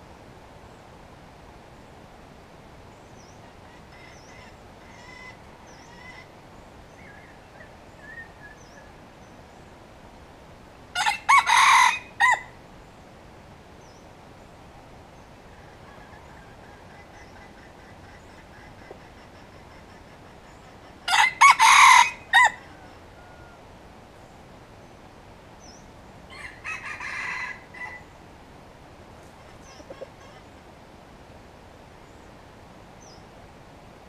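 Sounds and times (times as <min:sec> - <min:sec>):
rooster crowing: 0:11.0 - 0:12.6, 0:21.1 - 0:23.7, 0:26.3 - 0:28.1.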